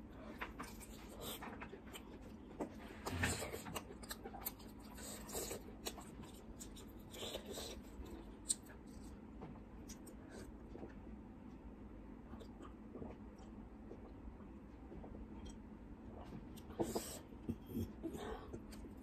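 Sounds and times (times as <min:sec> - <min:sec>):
chewing and wet mouth clicks: 0:12.3 - 0:14.2.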